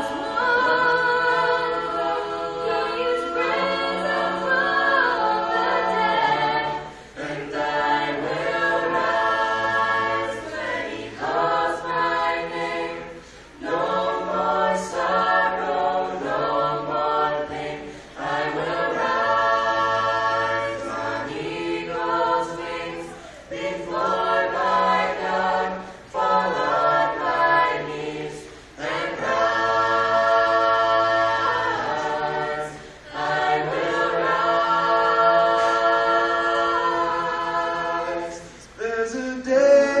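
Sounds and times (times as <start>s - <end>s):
a cappella group singing harmony: 0.0s - 40.0s.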